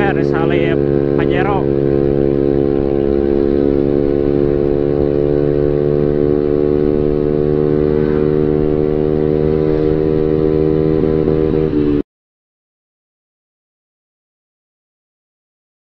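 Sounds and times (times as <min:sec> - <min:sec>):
scooter exhaust drone: 0:00.0 - 0:12.0.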